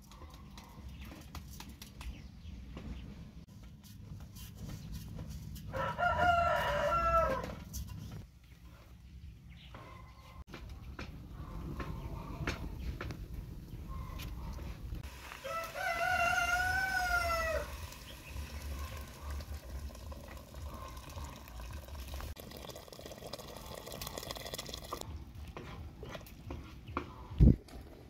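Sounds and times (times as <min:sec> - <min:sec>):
rooster crowing: 0:05.7 - 0:07.6, 0:15.4 - 0:17.8.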